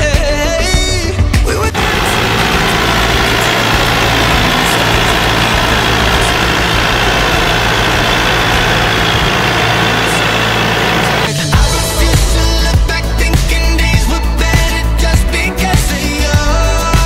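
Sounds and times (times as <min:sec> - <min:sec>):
tractor diesel engine running: 0:01.6 - 0:11.8.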